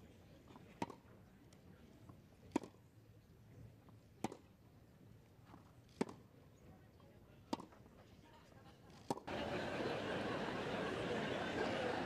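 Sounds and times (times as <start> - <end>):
tennis ball struck by rackets: 4.2 - 4.5, 7.5 - 7.7.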